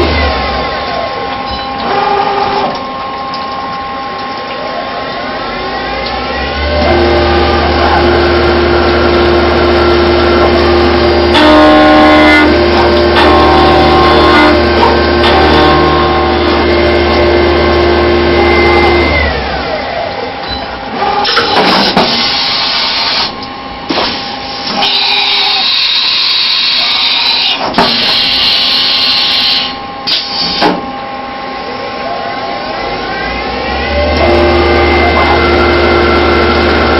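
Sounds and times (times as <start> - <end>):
milling spindle whine: 0.3 - 20.3.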